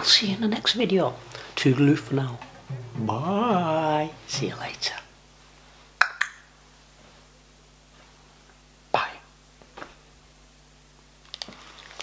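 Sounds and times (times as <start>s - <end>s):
faint steady hum: 0.0s - 12.0s
short sharp sound: 2.5s - 4.4s.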